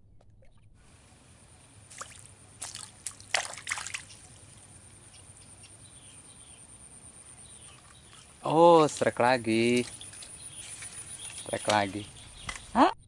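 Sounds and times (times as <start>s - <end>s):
water splashes and drips: 1.7s - 4.7s, 7.8s - 12.8s.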